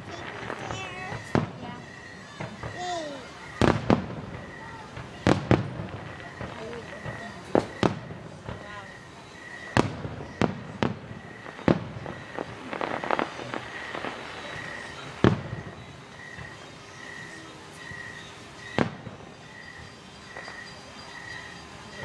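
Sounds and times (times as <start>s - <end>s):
distant firework booms: 0.0s - 20.7s
firework crackling: 0.0s - 22.0s
faint high chirp: 13.0s - 22.0s.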